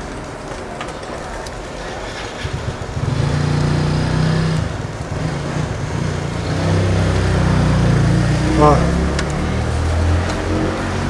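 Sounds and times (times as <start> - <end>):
vehicle engine running: 2.2 - 11.0.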